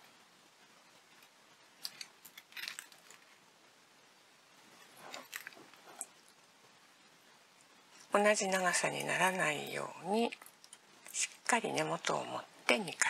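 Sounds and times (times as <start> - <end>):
beads clicking and rustling on wire: 1.0 - 3.4, 4.7 - 6.4.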